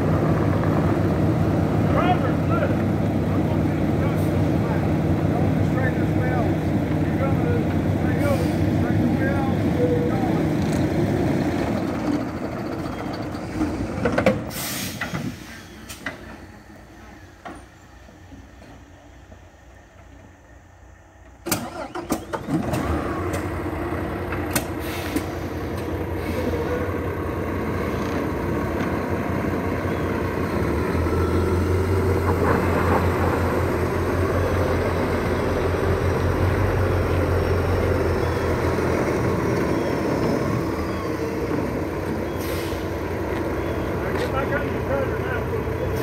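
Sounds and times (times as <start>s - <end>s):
truck engine starting and running: 0.0s - 46.0s.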